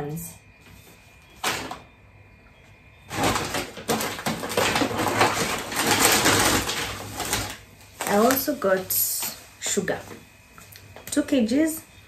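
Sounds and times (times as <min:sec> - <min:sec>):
paper bag rustling: 0:03.1 - 0:10.2.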